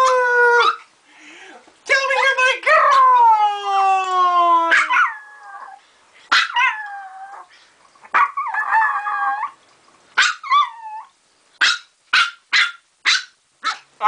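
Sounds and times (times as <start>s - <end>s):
small dog howling: 0.0s - 0.8s, 2.8s - 7.5s, 8.1s - 9.6s, 10.2s - 11.2s.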